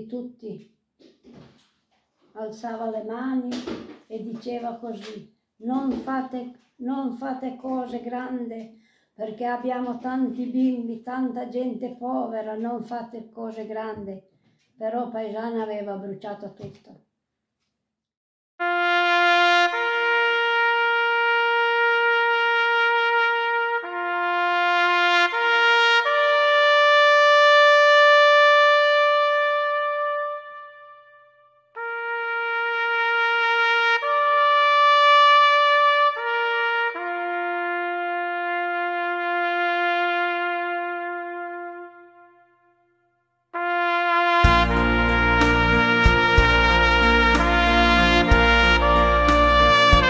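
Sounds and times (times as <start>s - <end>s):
solo trumpet playing long notes: 18.6s - 50.0s.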